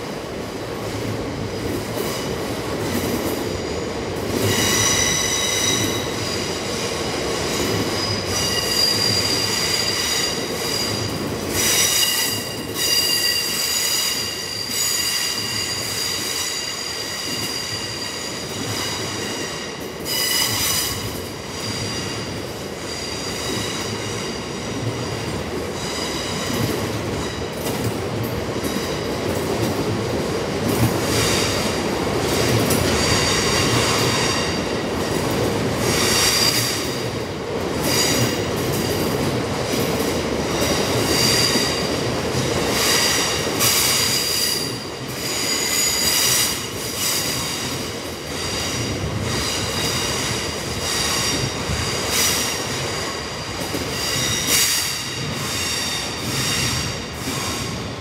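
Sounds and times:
train wheels rumbling on rails: 0.0 - 58.0
high wheel squeal: 7.9 - 21.0.

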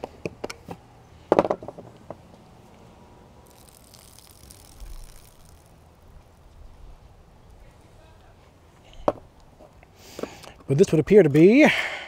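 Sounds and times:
liquid splashing onto ground: 3.4 - 6.5.

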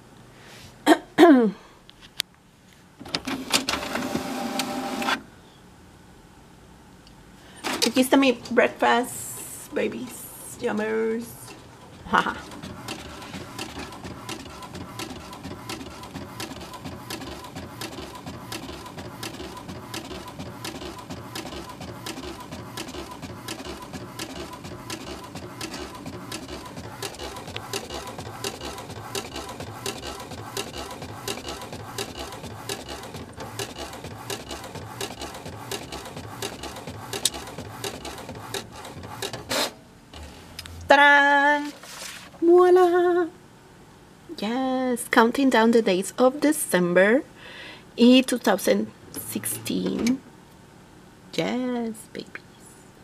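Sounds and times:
printer clicking and whirring: 3.0 - 5.2, 10.7 - 40.4
faint steady hum: 4.5 - 34.0, 39.7 - 53.0
sharp printer click: 12.5 - 40.3.

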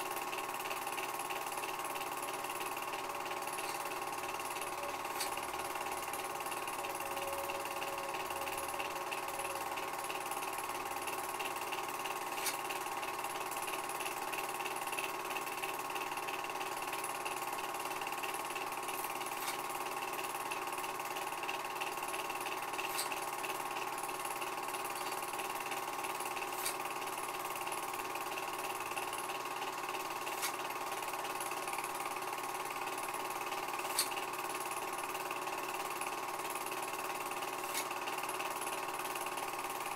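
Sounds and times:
film projector whirring: 0.0 - 39.9.

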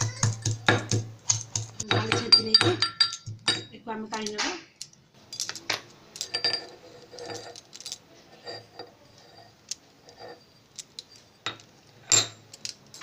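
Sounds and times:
pestle knocking in metal mortar: 0.0 - 3.8.

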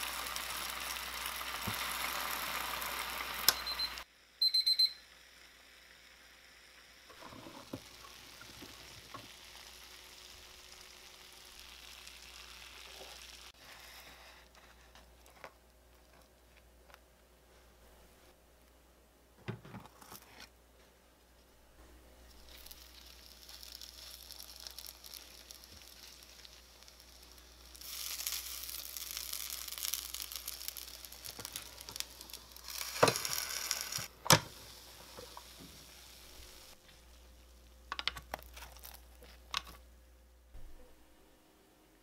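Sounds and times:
dough sizzling on hot plates: 0.0 - 15.4, 22.2 - 39.8.

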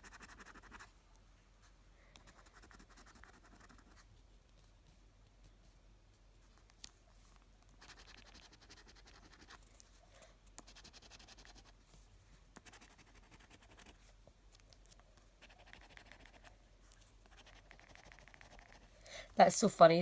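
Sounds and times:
coin scratching a scratch card: 0.0 - 0.9, 2.3 - 4.0, 7.8 - 9.6, 10.6 - 11.7, 12.6 - 14.0, 15.4 - 16.5, 17.3 - 18.9.

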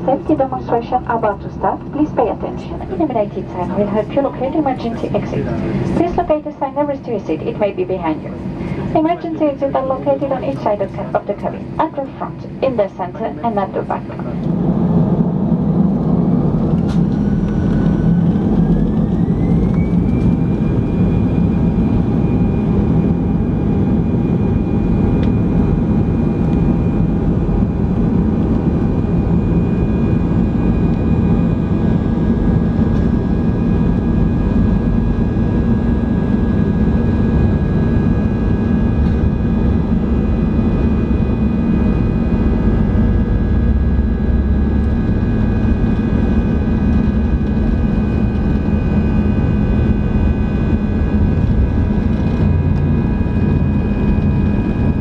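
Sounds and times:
jet engines spooling up: 0.0 - 55.0.

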